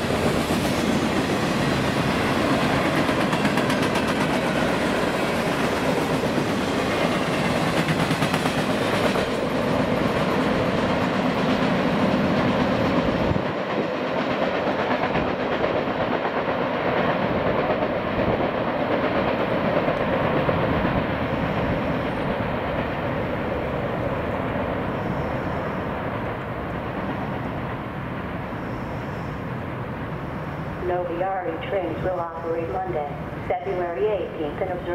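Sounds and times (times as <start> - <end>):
freight train wheels rumbling: 0.0 - 34.9.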